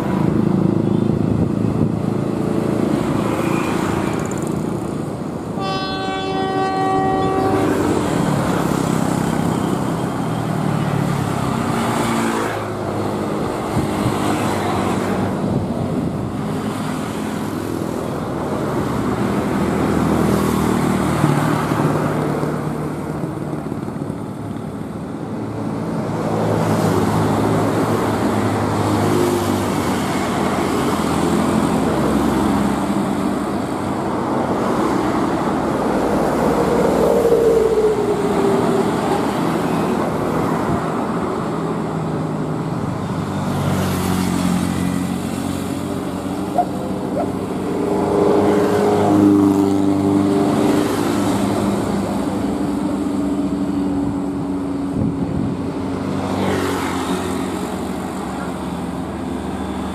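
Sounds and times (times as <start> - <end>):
heavy road traffic: 0.0 - 59.9
engine drone: 34.0 - 40.4.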